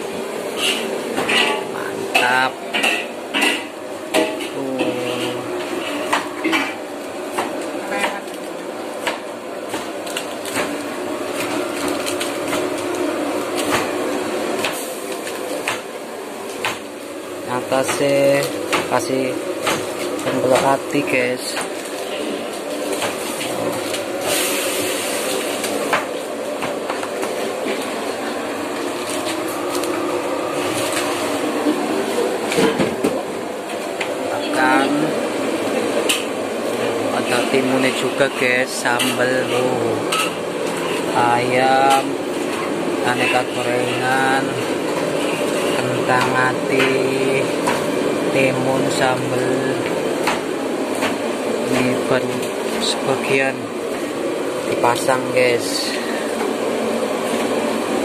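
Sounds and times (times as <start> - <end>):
steady background noise: 0.0 - 58.0.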